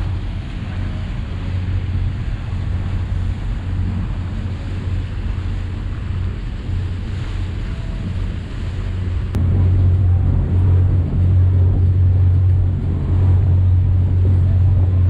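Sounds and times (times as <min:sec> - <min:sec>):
boat engine hum: 0:00.0 - 0:15.0
water rushing from wake: 0:00.0 - 0:15.0
wind buffeting microphone: 0:00.0 - 0:15.0.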